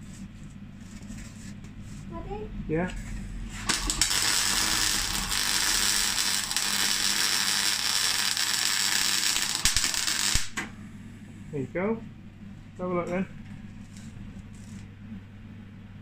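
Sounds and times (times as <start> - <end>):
welder arc crackling: 3.5 - 10.7.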